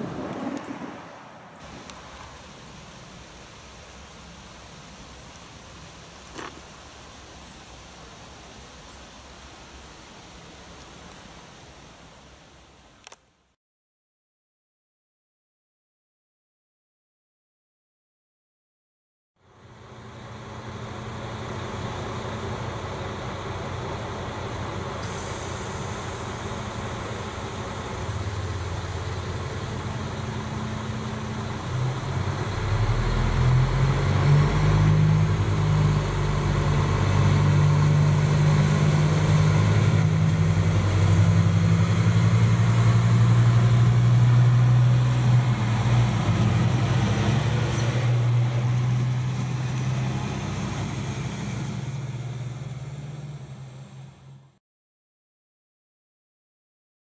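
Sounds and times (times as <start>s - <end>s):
railcar diesel engines running: 19.4s - 54.5s.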